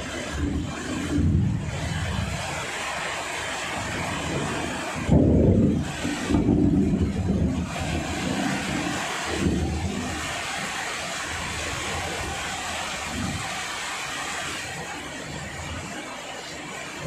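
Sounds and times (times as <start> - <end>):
low rumbles: 0.0 - 10.6
heavy rain falling: 0.0 - 17.0.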